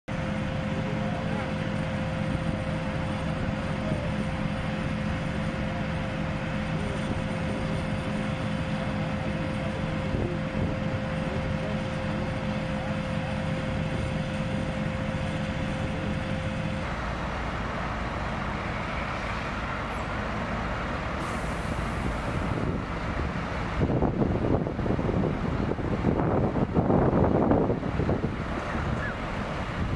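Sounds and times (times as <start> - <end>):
diesel engines running: 0.1 - 29.9
wind buffeting microphone: 21.8 - 29.9.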